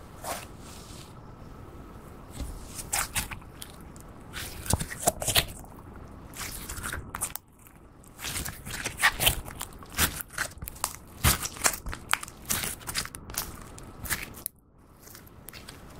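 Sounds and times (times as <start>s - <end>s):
sticky slime crackling and peeling: 6.3s - 15.9s.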